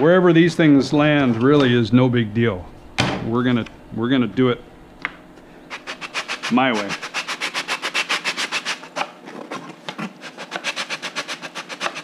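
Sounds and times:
sanding block rasping on wood: 5.7 - 9.0, 10.1 - 12.0.

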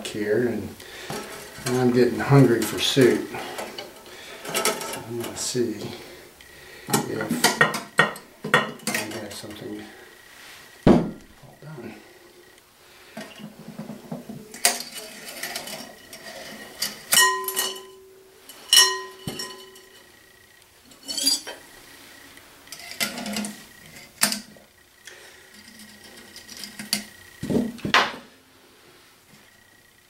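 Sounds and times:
glass and metal cookware clinking: 7.4 - 9.1, 14.5 - 20.0
sharp ringing clinks: 17.1 - 20.2.

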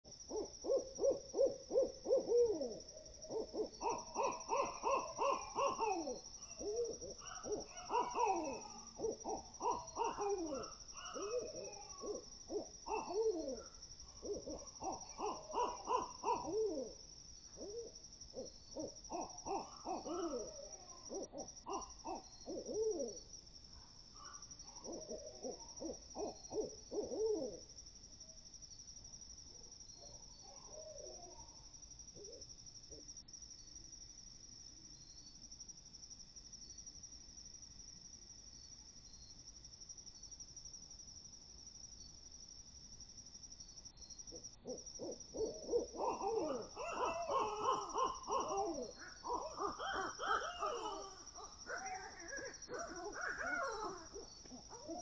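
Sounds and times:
high insect trill: 0.0 - 55.0
owls hooting and chattering: 0.3 - 17.0, 17.6 - 23.2, 24.2 - 27.6, 44.3 - 55.0.

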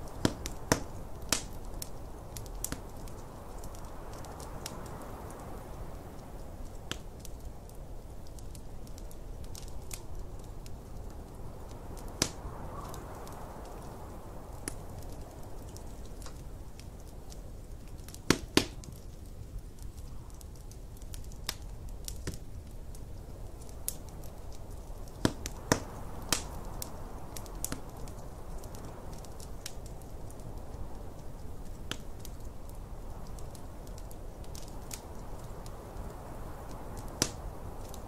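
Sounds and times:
wood fire crackling: 0.0 - 38.0
snowstorm wind rushing: 11.0 - 16.6.

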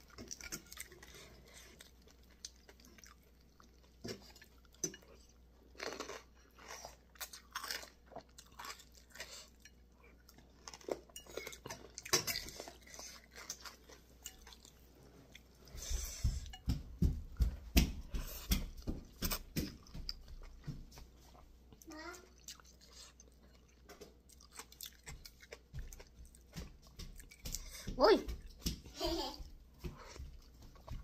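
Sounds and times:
wet chewing and lip-smacking: 18.0 - 28.6.

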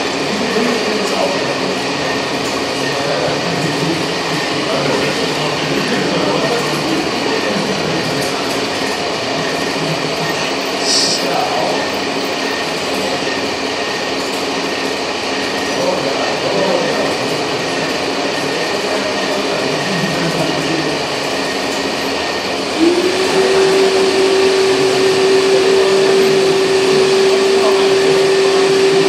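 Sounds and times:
motor whine: 22.6 - 29.0.

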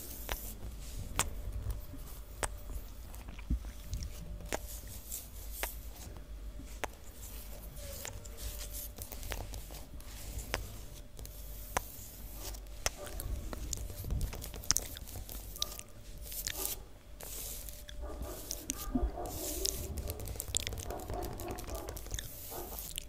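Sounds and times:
wet mouth clicks and pops: 2.4 - 2.6.

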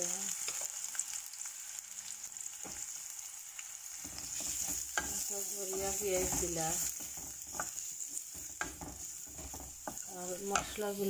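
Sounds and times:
onions sizzling in hot oil: 0.0 - 11.0
wooden spatula scraping pan: 4.0 - 11.0.

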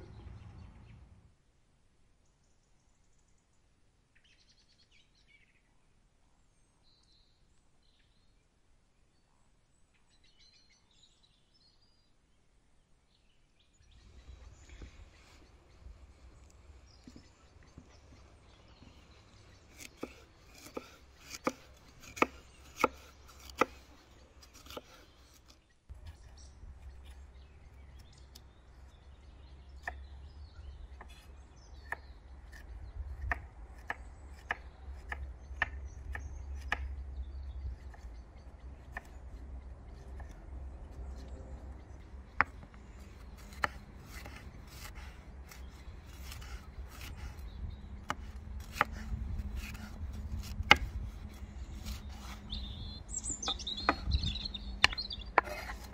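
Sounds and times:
low steady rumble: 0.0 - 1.3.

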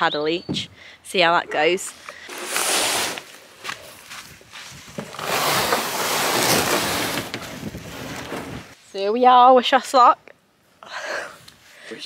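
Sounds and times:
canoe hull scraping over gravel: 2.3 - 3.4, 4.7 - 8.8.

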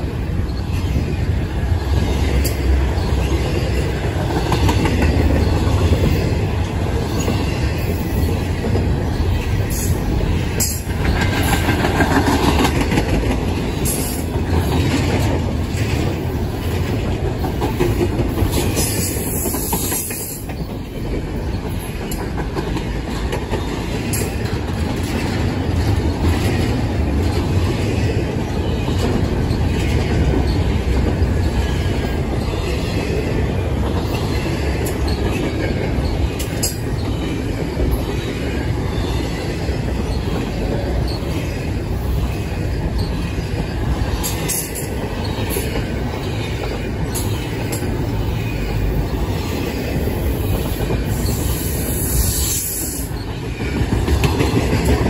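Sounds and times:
freight train rumbling past: 0.0 - 55.0
wheels clacking over track: 10.5 - 41.2.

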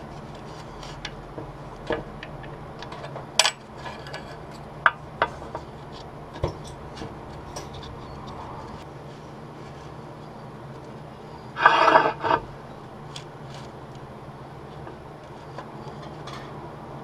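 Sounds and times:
steady low hum: 0.0 - 17.0
metal parts clicking and knocking: 0.8 - 8.4.

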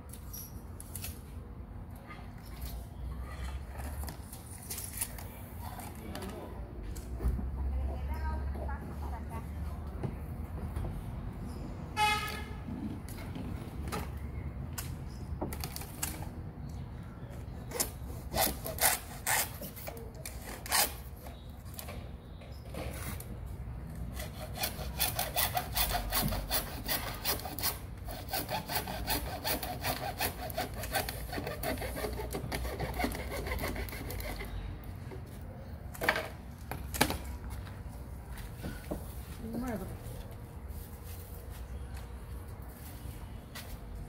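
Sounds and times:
hacksaw sawing plastic panel: 24.1 - 34.5.

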